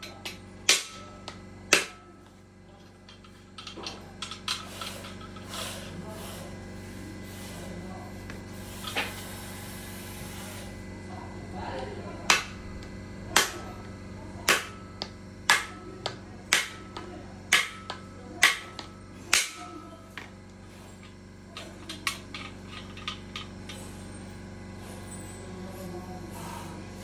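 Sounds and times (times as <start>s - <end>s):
hammer striking metal: 0.0s - 2.2s, 14.4s - 19.8s.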